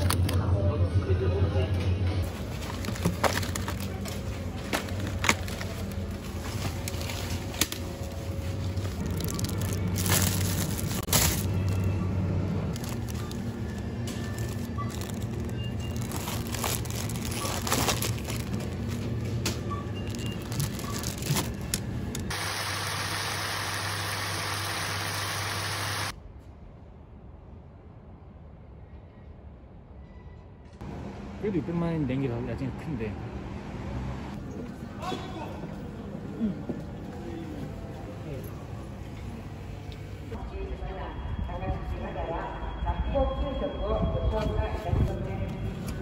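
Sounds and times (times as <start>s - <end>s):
shop background noise: 0.0s - 22.4s, 32.3s - 41.4s
supermarket background hum: 0.0s - 46.0s
plastic bag crinkling: 2.2s - 8.1s, 8.8s - 12.0s, 12.7s - 19.0s, 20.1s - 22.3s.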